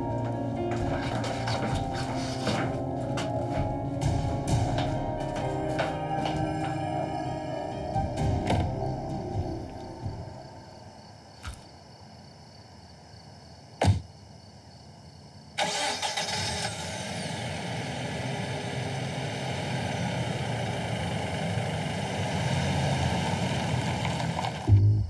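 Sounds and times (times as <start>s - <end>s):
car engine starting and idling: 0.0s - 10.6s, 15.6s - 25.0s
thump: 13.8s - 14.0s.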